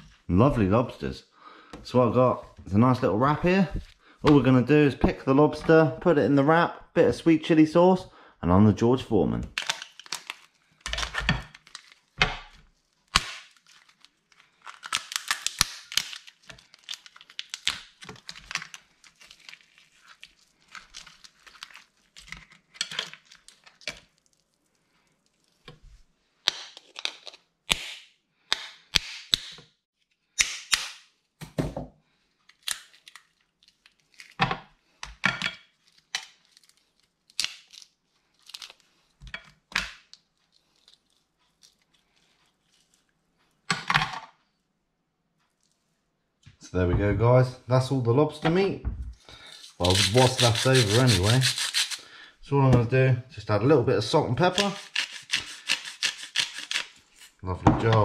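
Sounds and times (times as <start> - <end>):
lobster shell cracking: 9.5 - 12.1, 13.1 - 24.2, 32.5 - 34.4, 36.0 - 38.9, 54.6 - 57.4.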